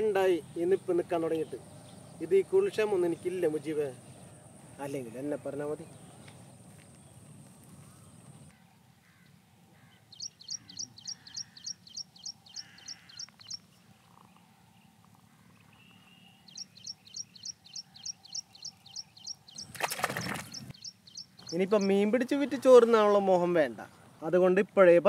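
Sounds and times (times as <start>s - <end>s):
bird calling with sharp high notes: 10.1s - 14.3s, 15.7s - 22.0s.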